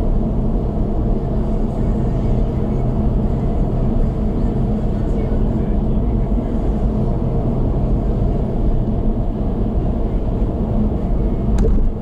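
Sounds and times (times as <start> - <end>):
road and tyre rumble: 0.0 - 12.0
brief knock: 11.5 - 12.0.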